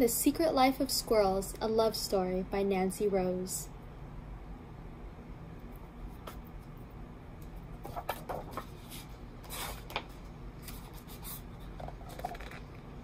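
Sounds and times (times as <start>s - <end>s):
book pages rustling: 7.8s - 12.7s.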